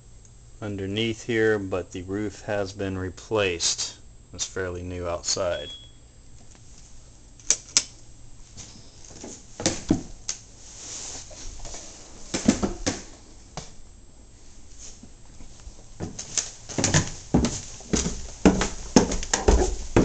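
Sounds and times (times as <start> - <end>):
footsteps on wooden floorboards: 16.0 - 20.0.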